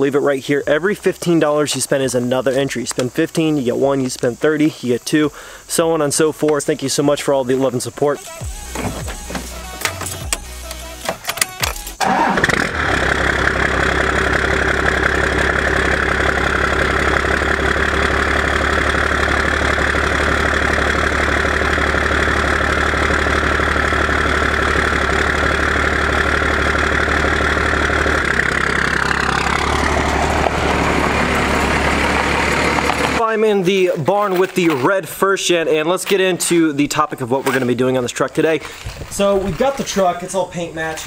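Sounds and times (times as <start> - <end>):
diesel engine idling: 0.0 - 11.1, 11.7 - 41.0
diesel engine cranking: 0.0 - 41.0
truck pulling away: 8.4 - 39.2.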